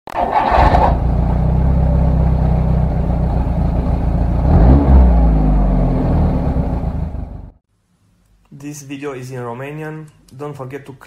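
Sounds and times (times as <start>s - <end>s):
car engine idling and revving: 0.2s - 7.6s.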